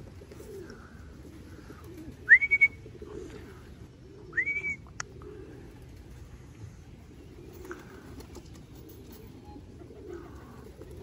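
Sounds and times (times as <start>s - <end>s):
pigeons cooing: 0.0s - 11.0s
person whistling calls: 2.3s - 2.8s, 4.3s - 4.9s.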